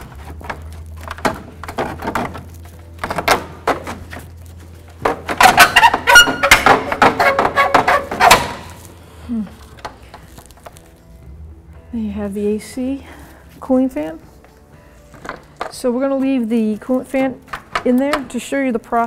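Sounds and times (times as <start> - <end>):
plastic scraping: 0.0 - 9.0.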